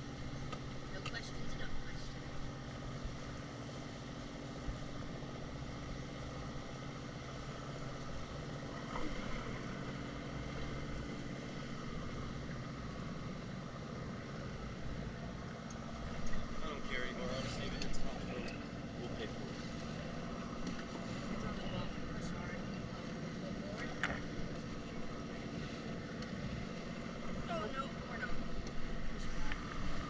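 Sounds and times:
jet ski engine humming: 0:00.0 - 0:30.0.

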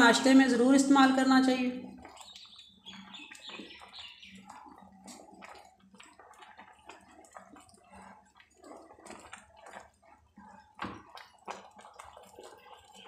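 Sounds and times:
porridge bubbling with wet plops: 0:00.0 - 0:13.0.

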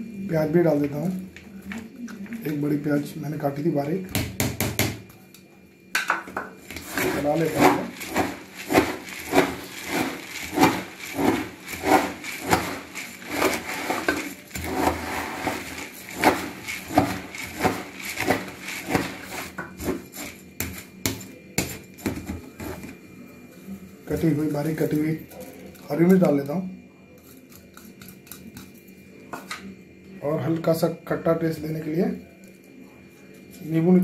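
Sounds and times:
metal spoon scraping plastic tub: 0:06.6 - 0:20.4
puffed rice rustling: 0:06.6 - 0:20.4.

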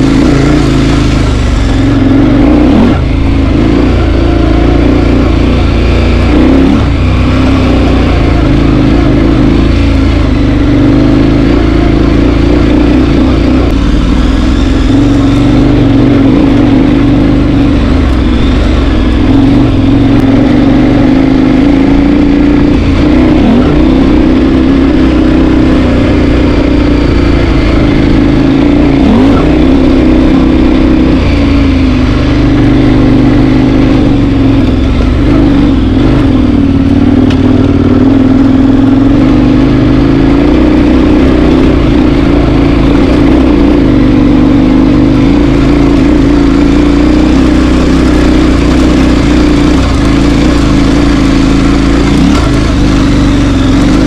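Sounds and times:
vehicle engine running: 0:00.0 - 0:54.0.

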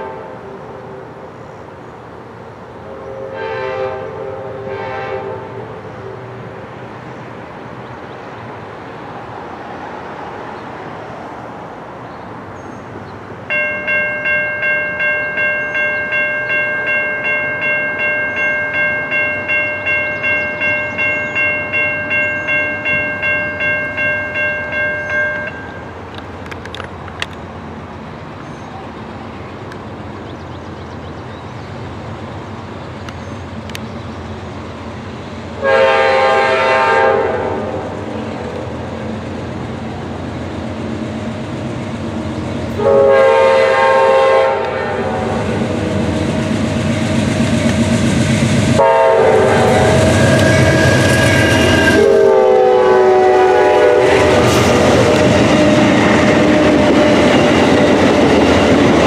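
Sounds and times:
locomotive air horn blasts: 0:00.0 - 0:01.0, 0:02.8 - 0:06.2, 0:35.6 - 0:38.0, 0:42.8 - 0:45.6, 0:48.8 - 0:54.8.

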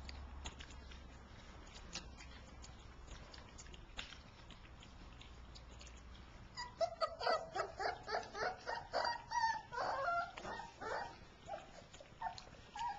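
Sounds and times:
puppies whimpering and yipping: 0:06.5 - 0:12.9.

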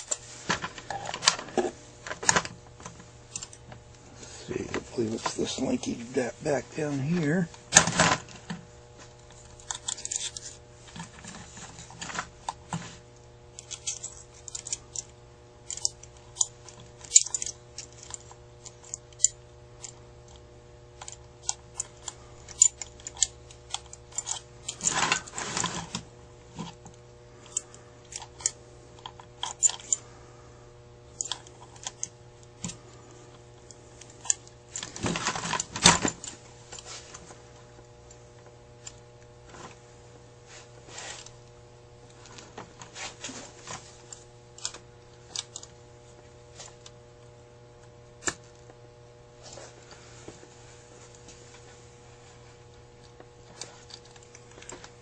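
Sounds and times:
steady low hum: 0:00.0 - 0:55.0
metal parts clicking and rattling: 0:09.5 - 0:11.4, 0:13.6 - 0:20.0, 0:21.0 - 0:26.0, 0:27.5 - 0:30.0
scraping rustles: 0:24.8 - 0:26.0.

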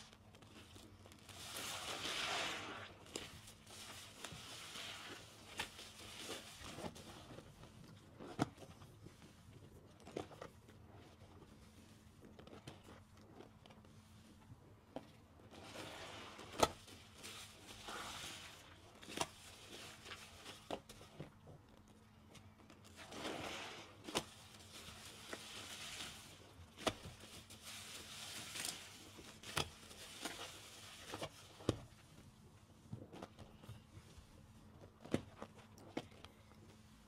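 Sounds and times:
wet sponge squelching: 0:00.6 - 0:07.4, 0:15.5 - 0:21.2, 0:22.9 - 0:31.8.

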